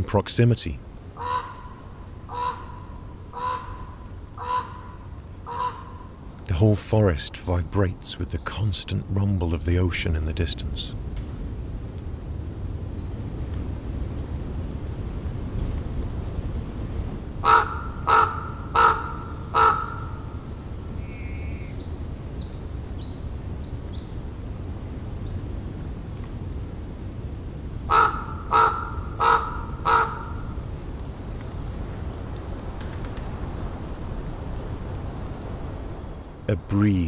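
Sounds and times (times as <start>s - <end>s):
distant ocean surf rumble: 0.0s - 21.0s, 21.8s - 37.0s
raven calling: 1.1s - 9.1s, 17.4s - 20.3s, 27.9s - 30.5s.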